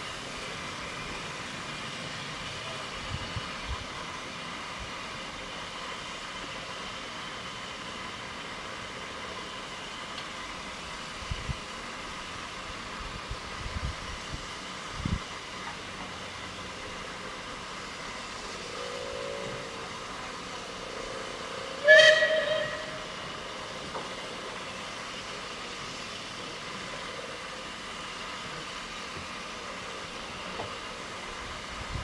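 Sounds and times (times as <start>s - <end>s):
train carriages on track: 0.0s - 32.0s
steam whistle blast: 18.6s - 19.9s, 21.2s - 23.3s.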